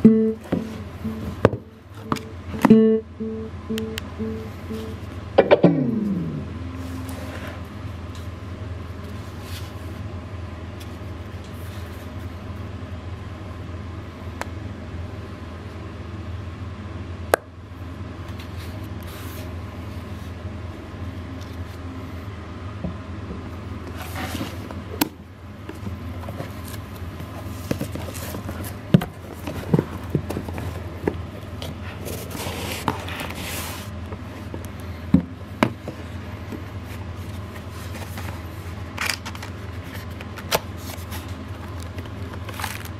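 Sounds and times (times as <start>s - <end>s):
steady low hum: 0.0s - 42.9s
sharp knocks and clicks: 5.4s - 5.9s
cardboard box rustling and scraping: 6.8s - 7.7s, 23.9s - 24.8s, 25.8s - 34.0s.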